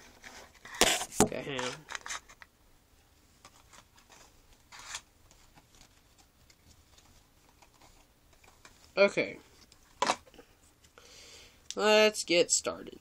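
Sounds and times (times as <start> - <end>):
rustling and handling noises: 0.0 - 2.5, 3.2 - 11.0.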